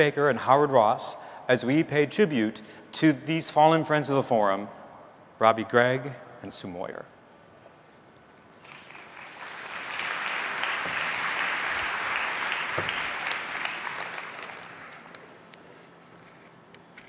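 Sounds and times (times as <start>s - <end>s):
audience applauding: 8.6s - 15.4s.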